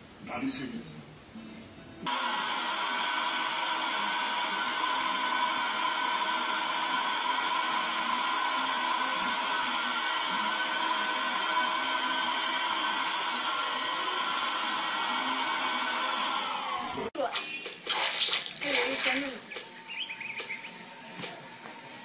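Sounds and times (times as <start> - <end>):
handheld vacuum cleaner running: 2.1 - 17.1.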